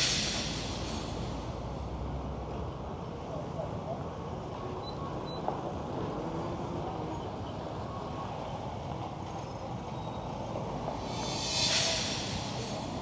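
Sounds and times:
short hiss: 0.0s - 1.7s, 10.9s - 13.0s
road traffic passing: 0.0s - 13.0s.

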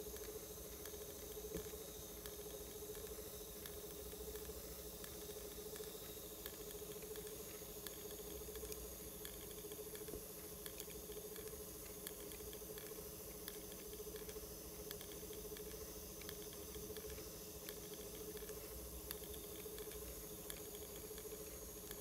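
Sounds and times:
faint motor tone: 0.0s - 22.0s
light ticking from tape transport: 0.0s - 22.0s
tape hiss: 0.0s - 22.0s.

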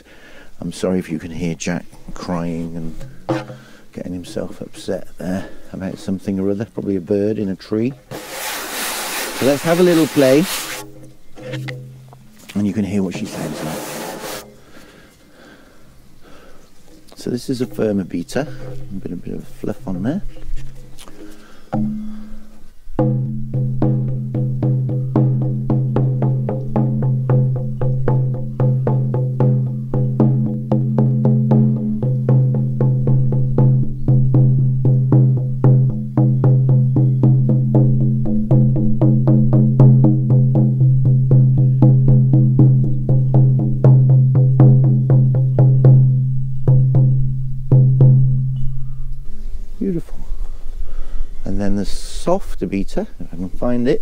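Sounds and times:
frame drum beating: 2.2s - 5.4s, 7.8s - 15.1s, 16.8s - 48.8s.

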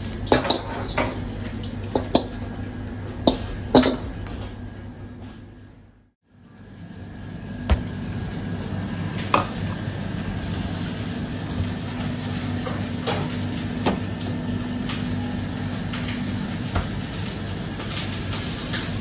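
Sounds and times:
kitchen mechanical hum: 0.0s - 19.0s.

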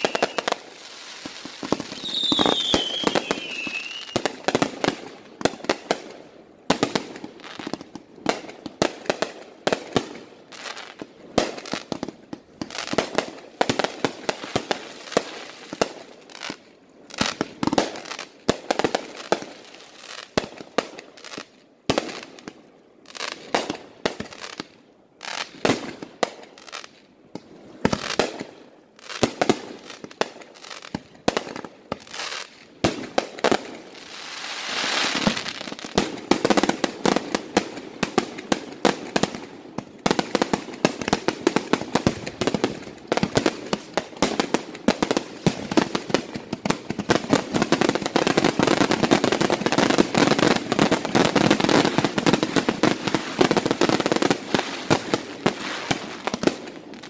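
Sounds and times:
fireworks bangs: 0.0s - 5.6s.

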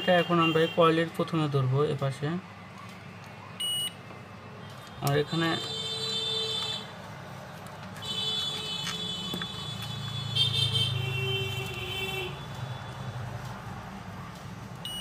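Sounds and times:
multimeter buzzer beeping: 3.6s - 4.0s.

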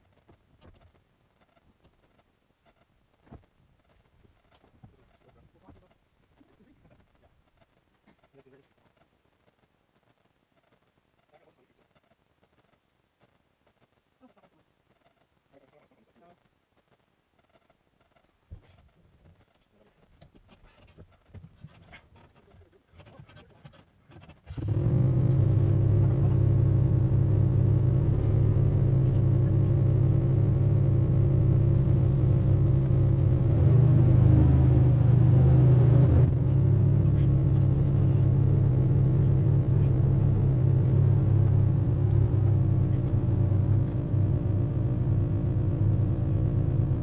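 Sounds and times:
engine low rumble: 24.5s - 47.0s.

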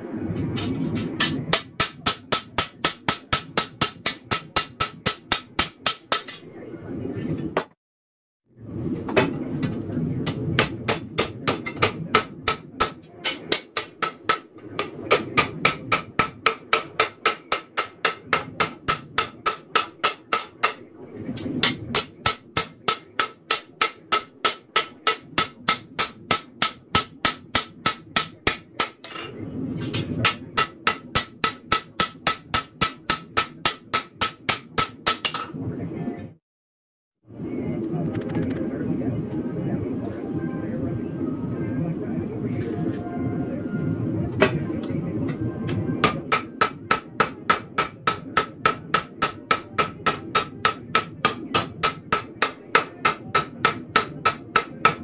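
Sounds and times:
hammer striking metal on anvil: 0.6s - 6.5s, 10.2s - 20.8s, 21.4s - 29.4s, 30.0s - 35.5s, 46.0s - 55.0s.

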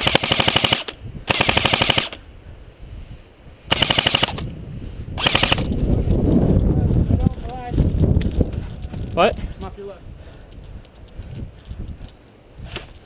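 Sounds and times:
airsoft rifle firing bursts: 0.0s - 2.2s, 3.7s - 4.4s, 5.2s - 5.7s.

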